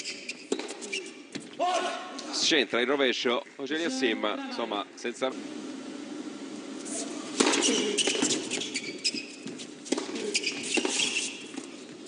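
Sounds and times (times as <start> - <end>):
sneakers squeaking on court: 0.0 - 1.5, 7.4 - 11.6.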